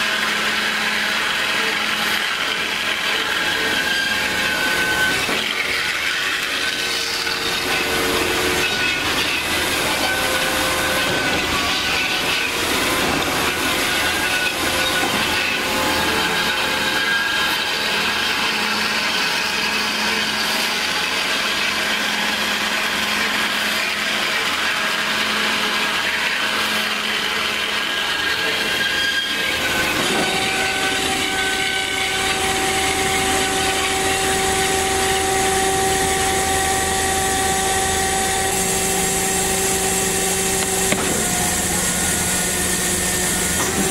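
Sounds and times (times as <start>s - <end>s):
band saw cutting metal: 0.0s - 43.9s.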